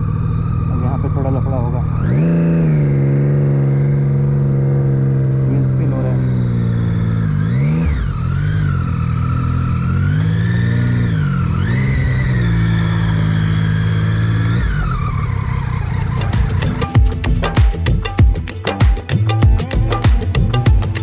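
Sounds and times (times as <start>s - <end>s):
motorcycle engine shifting gears: 0.0s - 21.0s
music with a beat: 16.2s - 21.0s.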